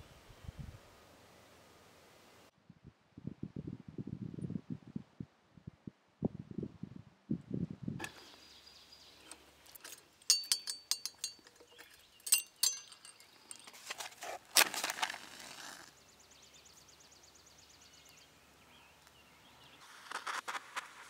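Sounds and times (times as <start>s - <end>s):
metallic clinks of brass torch: 9.2s - 14.1s.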